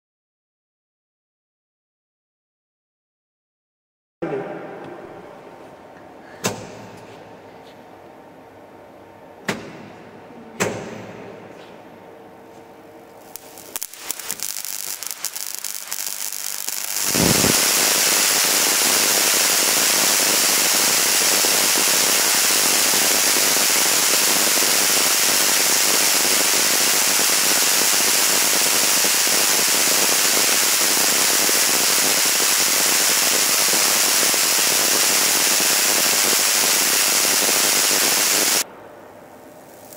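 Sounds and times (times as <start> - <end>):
electric sparks snapping: 13.2 - 38.6
hissing spark crackle: 13.2 - 38.7, 39.6 - 39.9.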